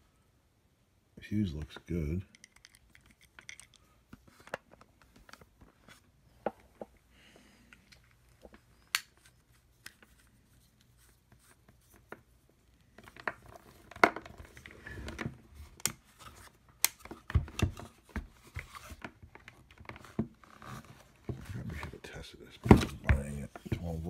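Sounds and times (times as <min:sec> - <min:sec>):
cord rustling: 0:07.7 - 0:22.0.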